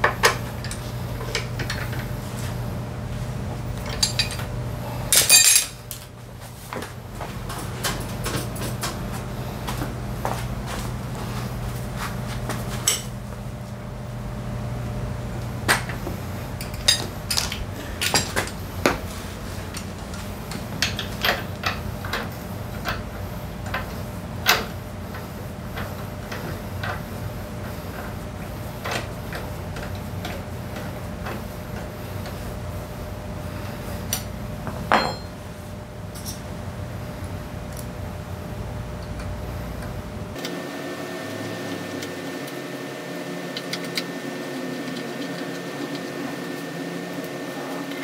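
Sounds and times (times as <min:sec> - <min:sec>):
metal hand tools clinking: 0:05.2 - 0:05.7.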